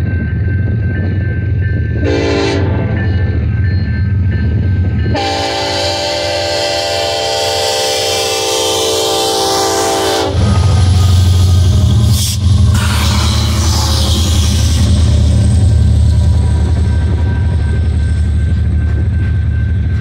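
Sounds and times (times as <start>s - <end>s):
diesel locomotive engine rumble: 0.0s - 20.0s
train air horn blasts: 2.0s - 2.9s, 5.1s - 11.0s, 12.2s - 14.9s.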